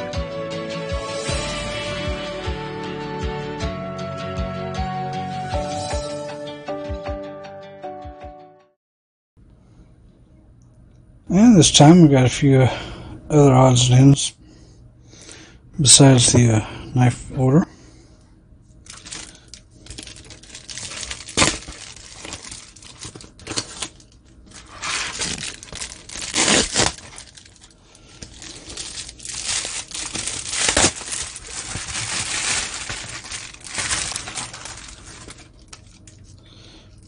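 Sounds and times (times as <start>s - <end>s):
plastic mailer ripping: 18.9s - 36.0s
plastic mailer crinkling: 18.9s - 36.2s.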